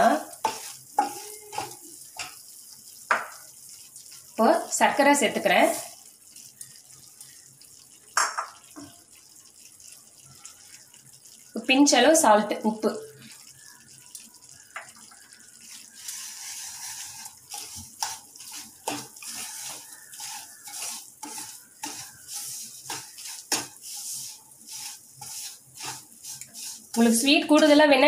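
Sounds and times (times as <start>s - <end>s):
wooden spatula scraping a pan: 0.0s - 2.4s, 5.5s - 6.0s, 15.7s - 27.8s
steady hiss: 15.8s - 27.8s.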